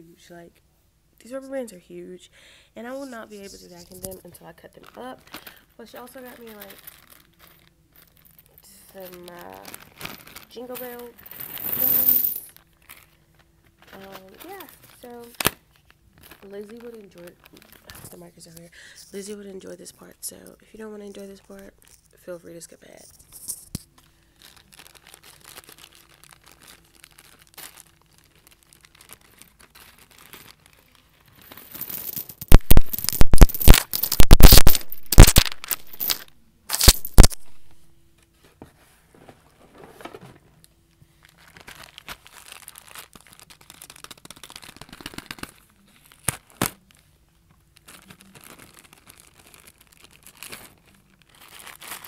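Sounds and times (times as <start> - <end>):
plastic packaging crinkling and tearing: 3.8 - 11.4, 12.5 - 18.6, 23.9 - 31.6, 32.5 - 37.7, 41.2 - 52.0.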